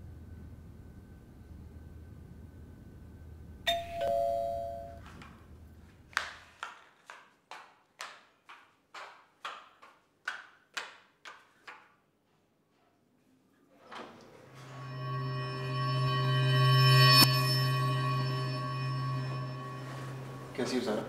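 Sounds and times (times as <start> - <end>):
two-tone doorbell chime: 3.7 - 5.0, 14.6 - 20.8.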